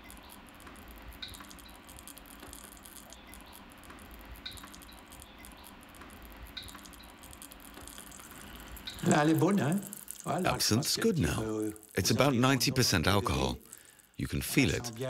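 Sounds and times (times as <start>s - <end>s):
faint small clicks: 0.0s - 9.0s.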